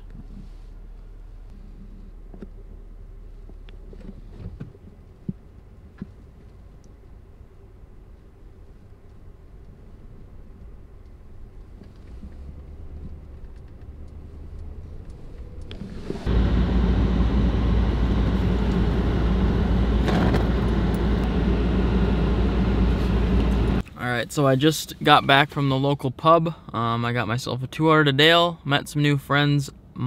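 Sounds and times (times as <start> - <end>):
pickup truck engine rumble: 9.9 - 24.0.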